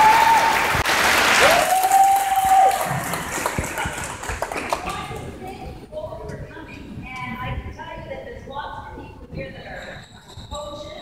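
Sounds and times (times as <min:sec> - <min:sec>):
crowd applause: 0:00.0 - 0:05.2.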